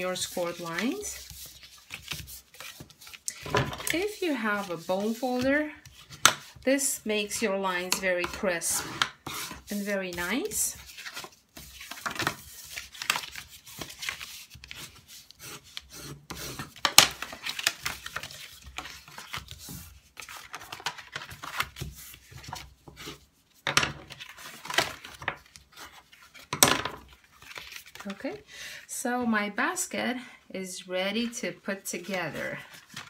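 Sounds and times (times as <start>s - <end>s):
paper rubbing and scraping: 0.0s - 7.5s, 8.3s - 23.3s.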